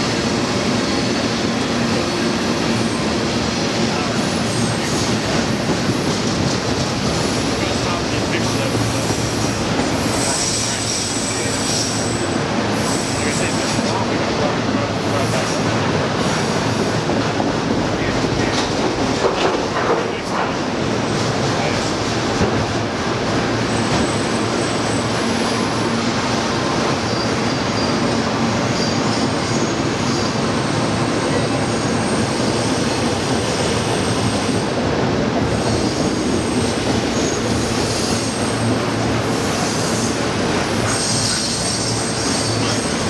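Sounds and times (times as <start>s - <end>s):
train wheels rumbling on rails: 0.0s - 43.0s
wheel flange squeals: 26.9s - 30.4s.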